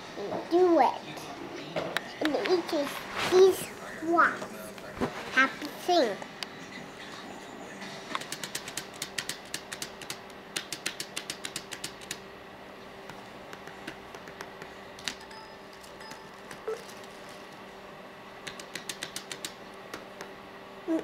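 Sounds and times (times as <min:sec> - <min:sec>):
faint steady hum: 0:00.0 - 0:21.0
keyboard keys clicking: 0:18.5 - 0:20.0.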